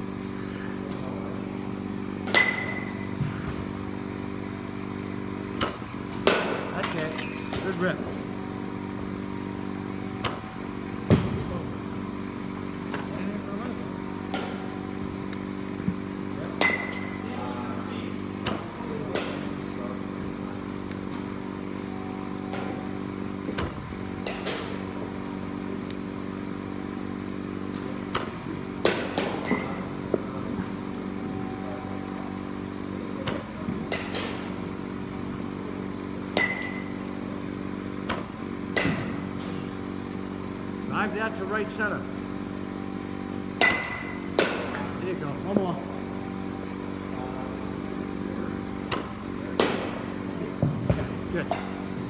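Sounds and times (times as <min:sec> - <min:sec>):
low machine hum: 0:00.0 - 0:52.0
bat striking balls: 0:01.6 - 0:03.7, 0:04.8 - 0:09.2, 0:10.0 - 0:13.2, 0:14.1 - 0:17.3, 0:18.2 - 0:21.7, 0:22.3 - 0:26.1, 0:26.7 - 0:31.2, 0:33.1 - 0:40.3, 0:43.3 - 0:45.7, 0:47.8 - 0:52.0.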